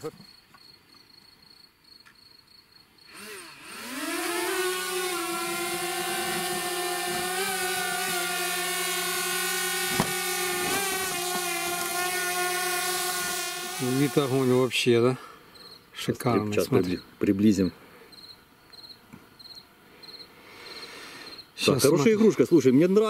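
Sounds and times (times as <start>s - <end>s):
drone propeller buzz: 3.1s - 14.7s.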